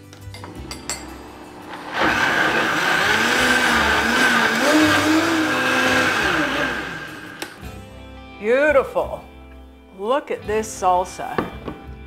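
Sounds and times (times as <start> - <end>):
blender motor running: 1.2 - 7.6.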